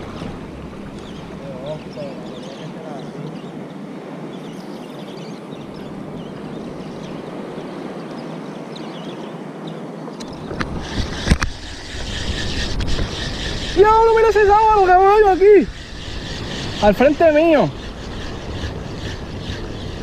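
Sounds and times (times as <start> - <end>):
sea water lapping: 0.0 - 8.6, 10.2 - 20.0
low wind rumble: 0.0 - 20.0
wind on microphone: 10.1 - 20.0.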